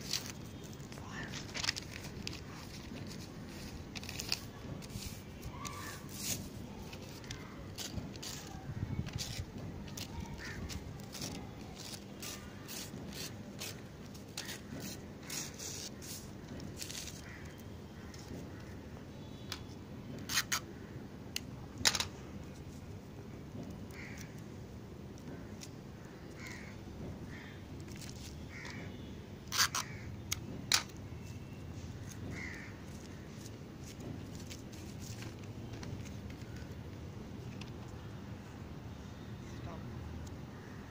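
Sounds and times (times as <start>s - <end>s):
newspaper tearing: 0.0s - 17.4s.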